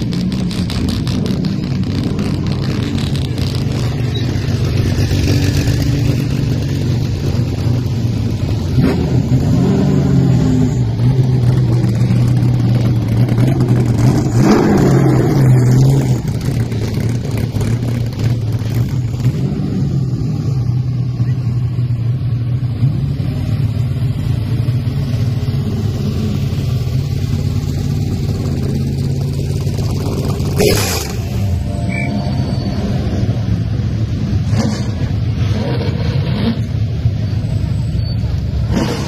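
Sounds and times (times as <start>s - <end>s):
car engine idling: 20.0s - 32.4s.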